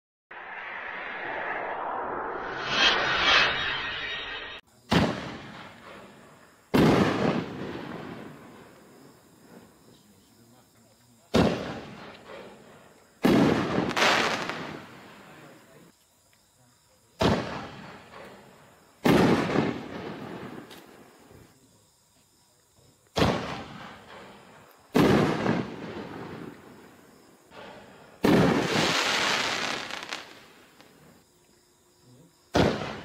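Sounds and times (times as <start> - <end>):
firework shells booming: 4.8 - 9.0, 11.3 - 15.2, 17.2 - 21.0, 23.1 - 31.0, 32.5 - 33.0.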